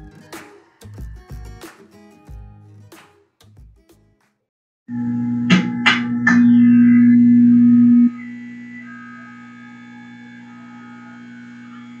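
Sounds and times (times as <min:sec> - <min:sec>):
low drone: 0:04.9 - 0:12.0.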